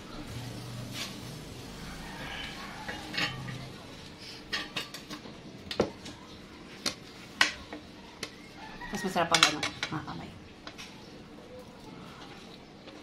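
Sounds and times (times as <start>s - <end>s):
cutlery clinking against plates: 2.7s - 3.8s, 4.4s - 5.8s.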